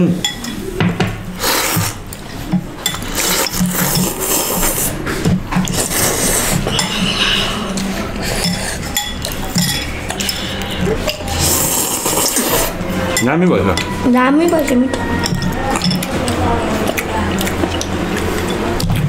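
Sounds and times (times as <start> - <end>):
cutlery clinking on ceramic bowls: 0.2 - 0.7, 2.4 - 4.2, 5.6 - 18.8
noodles being slurped: 1.4 - 12.8.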